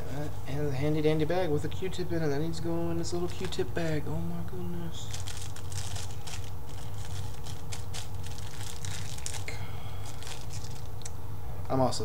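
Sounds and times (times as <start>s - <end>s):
steady low hum: 0.0s - 12.0s
plastic bag crinkling: 3.1s - 4.0s, 5.0s - 11.1s.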